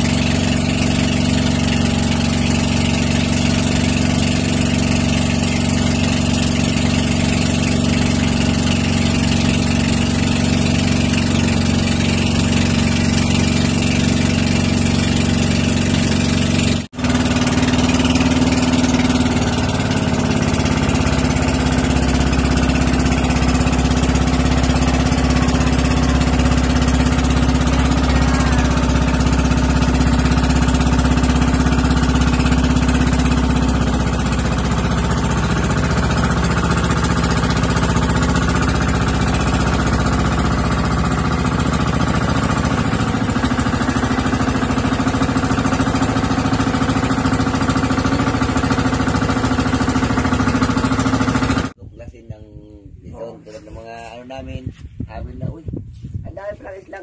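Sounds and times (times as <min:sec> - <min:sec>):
boat engine running: 0:00.0 - 0:51.8.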